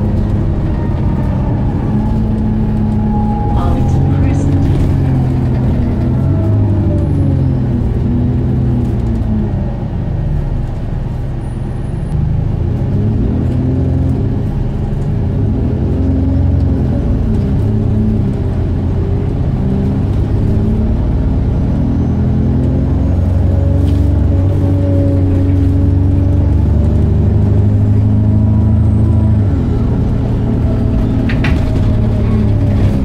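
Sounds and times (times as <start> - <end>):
steady low rumble: 0.0 - 11.4
bus engine drone: 0.0 - 33.0.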